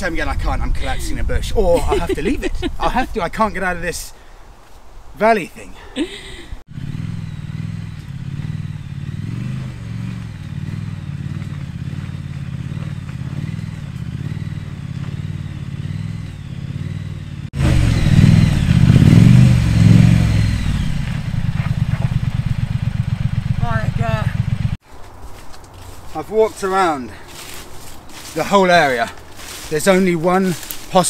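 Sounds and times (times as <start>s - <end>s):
motorcycle engine revving: 6.6s - 24.8s.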